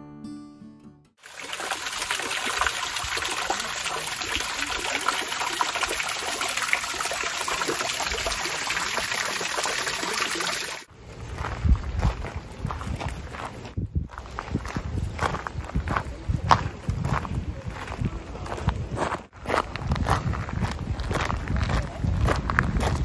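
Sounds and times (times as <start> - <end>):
water splashing over rocks: 1.2 - 10.9.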